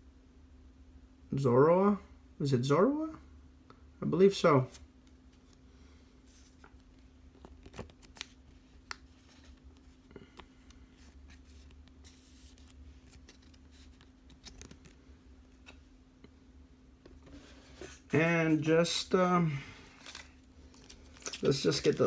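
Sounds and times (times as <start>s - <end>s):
low steady hum: 0.0s - 22.0s
cards and wrappers rustling: 6.2s - 15.8s, 19.6s - 22.0s.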